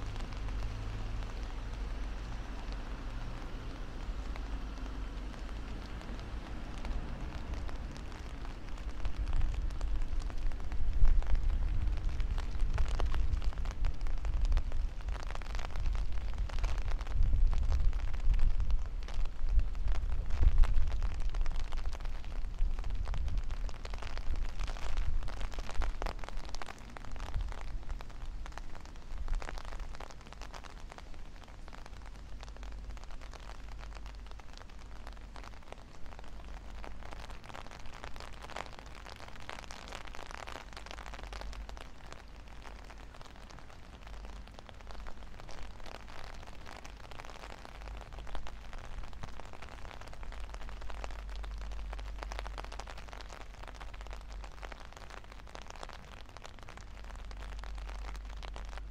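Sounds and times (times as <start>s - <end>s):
rain pattering: 0.0s - 58.9s
wind buffeting microphone: 9.0s - 26.2s.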